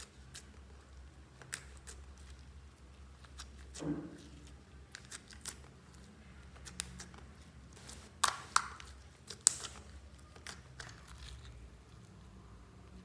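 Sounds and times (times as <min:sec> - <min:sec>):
slime kneaded with sticky clicks: 0:00.0 - 0:02.4, 0:08.2 - 0:11.5.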